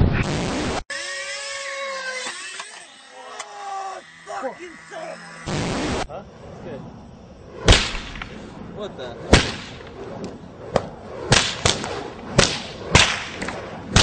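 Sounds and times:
sharp cracks: 4.4s - 6.1s, 7.5s - 8.6s, 9.3s - 14.0s.

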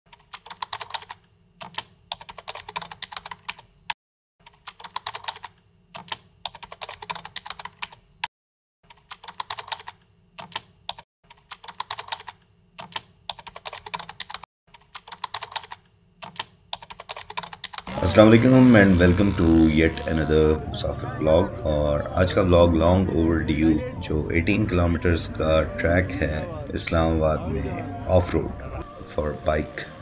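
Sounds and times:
rapid keyboard typing clicks: 0.1s - 3.6s, 4.4s - 8.0s, 8.9s - 17.9s.

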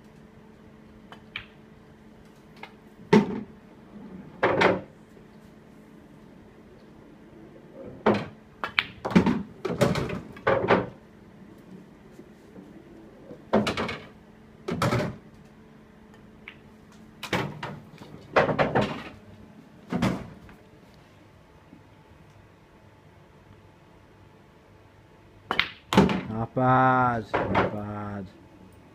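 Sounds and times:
pool balls clicking: 1.1s - 1.6s, 7.8s - 11.0s, 16.1s - 19.2s, 25.5s - 26.4s.

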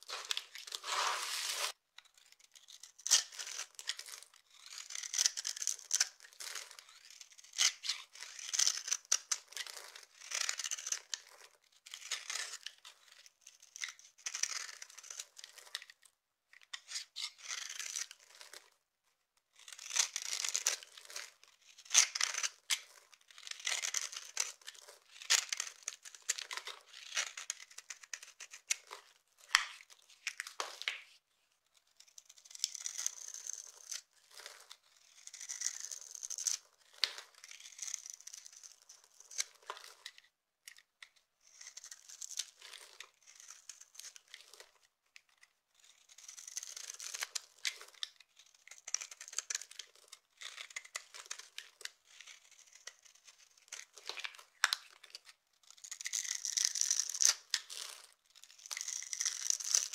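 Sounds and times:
hands rustling soap shavings: 0.0s - 1.8s
knife slicing dry soap: 16.9s - 18.6s, 32.1s - 40.1s, 55.7s - 59.9s
soap crunching in hand: 55.9s - 58.0s, 58.6s - 59.9s.

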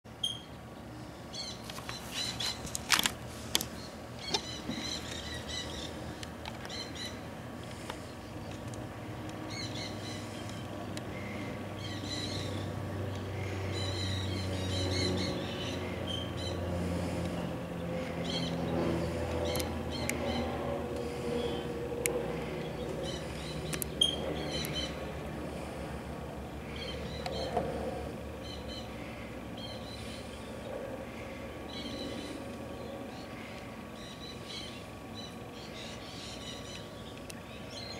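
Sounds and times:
sharp clicks: 19.3s - 20.2s, 23.3s - 24.8s.

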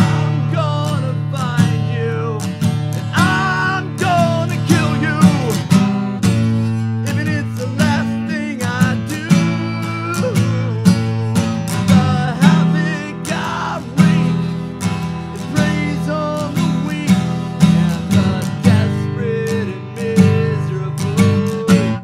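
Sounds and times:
man singing: 0.0s - 22.0s
strummed acoustic guitar: 0.0s - 22.0s.

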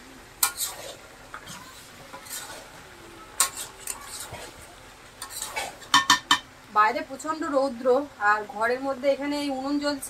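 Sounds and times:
utensil scraping in a cooking pot: 0.4s - 6.4s.

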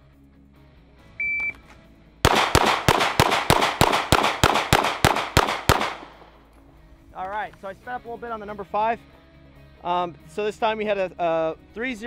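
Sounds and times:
shot timer beep: 1.2s - 1.6s
pistol shots: 2.2s - 6.5s.

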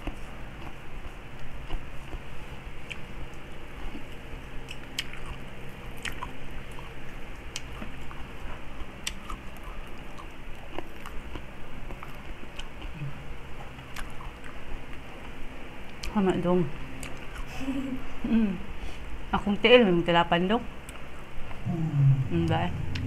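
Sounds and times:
chewing and biting crispy food: 0.0s - 16.2s
faint low hum: 0.0s - 23.0s.

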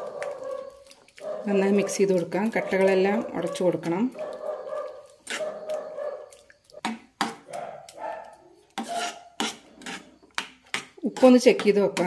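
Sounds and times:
metal ladle scraping steel pan: 5.0s - 5.7s, 8.7s - 12.0s.

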